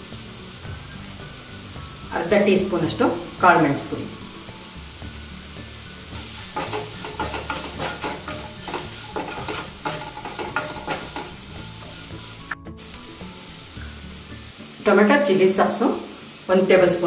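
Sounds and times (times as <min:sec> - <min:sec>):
vegetables sizzling in oil: 0:00.0 - 0:17.0
spatula scraping a pan: 0:06.2 - 0:12.4.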